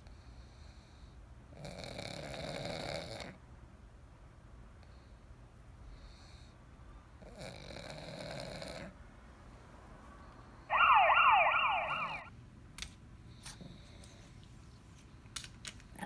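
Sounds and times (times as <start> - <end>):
siren-like warbling tone: 10.7 - 12.3.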